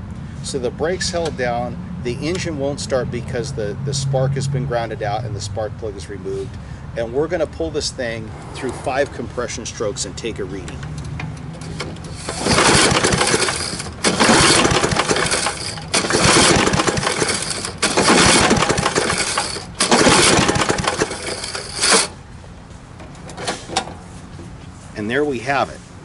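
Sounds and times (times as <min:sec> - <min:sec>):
engine cranking without firing: 0:10.5 - 0:22.3
recoil starter pull: 0:11.0 - 0:22.2.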